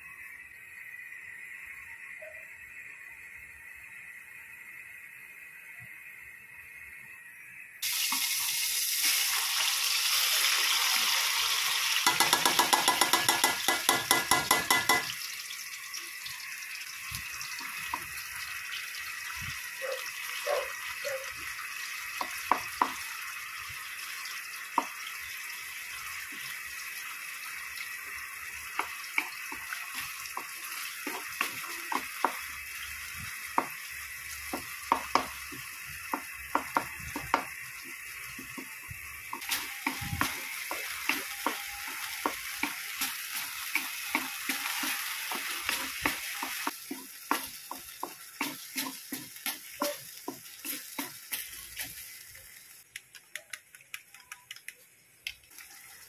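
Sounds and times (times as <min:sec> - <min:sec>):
fish sizzling in hot oil: 0:00.0 - 0:52.9, 0:55.5 - 0:56.0
spoon knocking against wok: 0:12.0 - 0:15.2.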